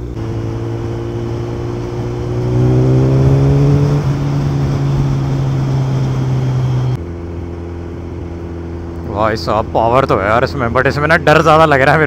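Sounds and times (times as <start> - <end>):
motorcycle engine revving: 0.0 - 9.1.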